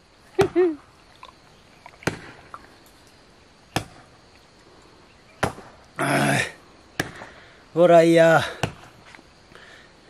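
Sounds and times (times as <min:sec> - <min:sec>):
man gulping water: 0:01.1 - 0:02.7.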